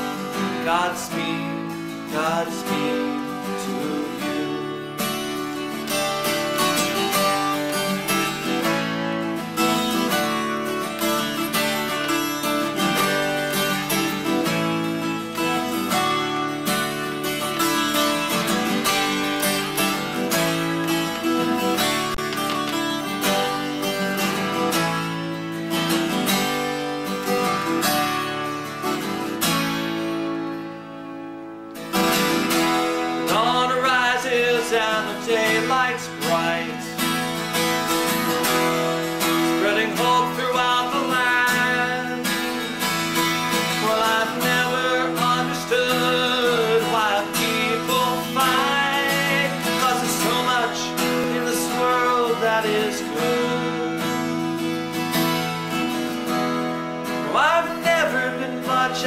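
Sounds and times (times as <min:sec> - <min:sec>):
man singing: 0:00.0 - 0:10.4, 0:12.0 - 0:22.0, 0:32.5 - 0:54.6, 0:57.1 - 0:59.0
acoustic guitar strumming: 0:00.0 - 0:59.0.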